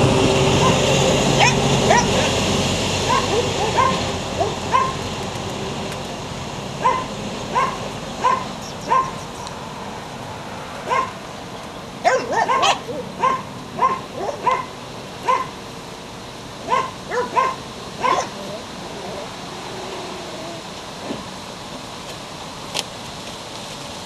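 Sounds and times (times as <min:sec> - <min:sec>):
puppy whining: 0:01.4 - 0:02.3, 0:12.1 - 0:14.6, 0:16.7 - 0:20.8.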